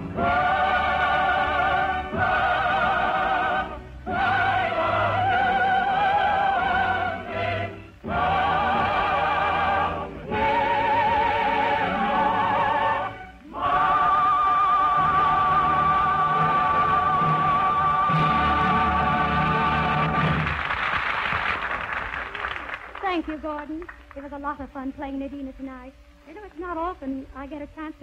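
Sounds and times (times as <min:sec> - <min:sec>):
operatic singing: 0:00.0 - 0:20.5
orchestra accompaniment: 0:00.0 - 0:20.6.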